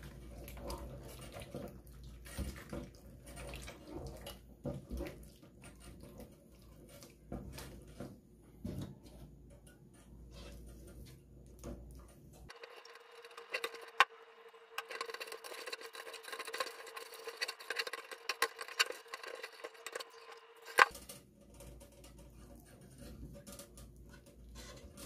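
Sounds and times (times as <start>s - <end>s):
wooden spoon stirring in metal pot: 12.0s - 25.0s.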